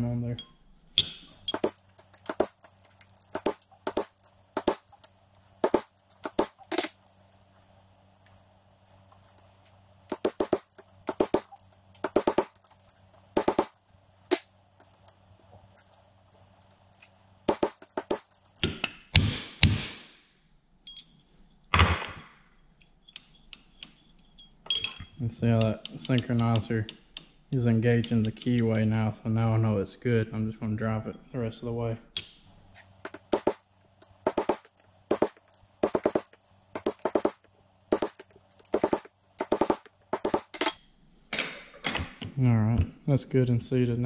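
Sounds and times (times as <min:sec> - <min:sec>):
hammer tapping steel punch: 0:01.4 - 0:06.9, 0:10.1 - 0:15.0, 0:16.6 - 0:18.8, 0:33.1 - 0:40.8.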